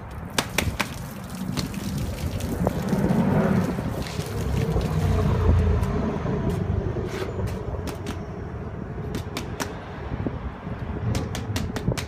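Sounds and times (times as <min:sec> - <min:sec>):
water dripping onto paving: 0:00.0 - 0:06.0.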